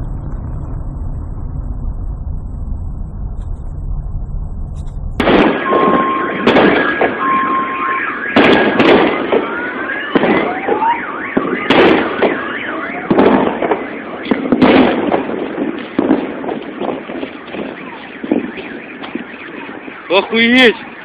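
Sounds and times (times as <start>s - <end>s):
low vehicle rumble: 0.0s - 7.1s
loud shock wave booms: 0.0s - 7.2s
car alarms beeping and warbling: 0.1s - 16.1s, 17.3s - 21.0s.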